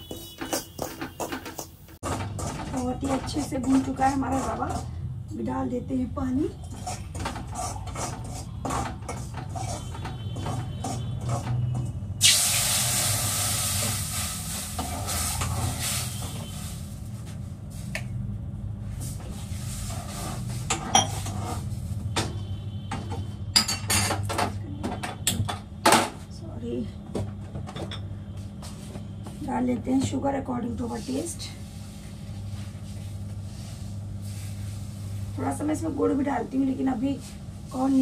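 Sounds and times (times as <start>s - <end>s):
spoon scraping a pan: 0.0s - 5.0s, 6.6s - 11.9s
loud sizzle: 12.2s - 17.2s, 31.8s - 35.4s.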